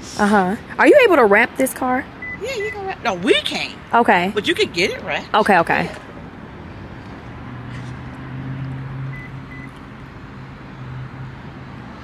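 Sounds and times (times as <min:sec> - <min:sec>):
short high beeps: 0:02.2 - 0:02.5, 0:09.2 - 0:09.7.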